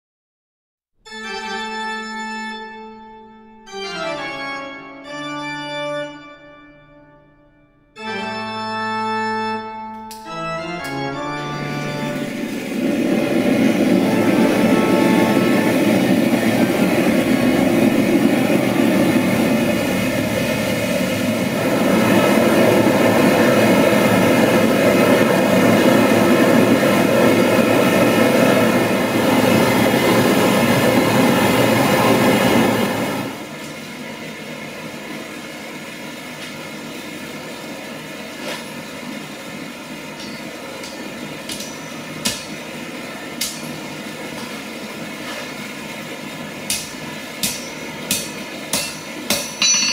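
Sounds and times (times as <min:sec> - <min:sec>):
gas forge burner rushing: 0:10.8 - 0:49.9
sharp metal clinks: 0:48.8 - 0:49.9.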